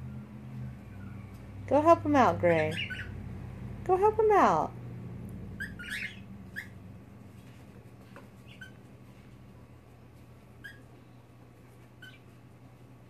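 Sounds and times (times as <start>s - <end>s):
faint low hum: 0.0s - 13.0s
cockatiel chirping: 2.6s - 3.2s, 5.6s - 6.8s, 8.4s - 8.8s, 10.6s - 10.9s, 12.0s - 12.3s.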